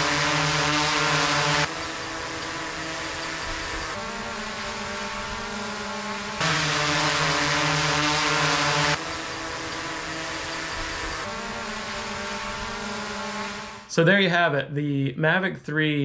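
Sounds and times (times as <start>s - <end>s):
drone propeller hum: 0.0s - 14.6s.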